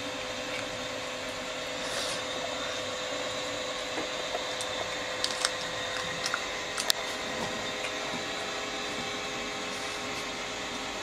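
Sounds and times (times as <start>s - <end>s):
background hiss and hum: 0.0s - 11.0s
chewing: 4.6s - 7.2s.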